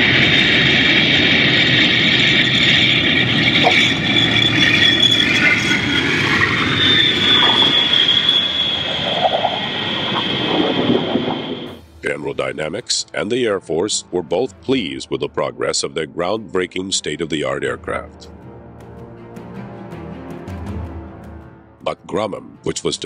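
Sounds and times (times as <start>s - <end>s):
jet engines at takeoff power: 0.0s - 11.9s.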